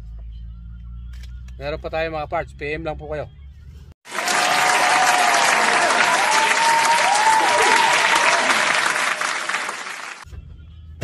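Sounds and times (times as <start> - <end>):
crowd clapping: 4.0 - 10.2
crowd whoops: 4.1 - 10.2.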